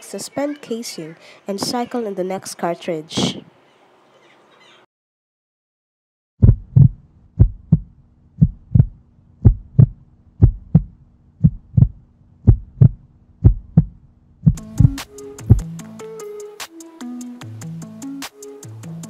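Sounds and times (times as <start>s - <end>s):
heartbeat double thump: 6.4s - 15.6s.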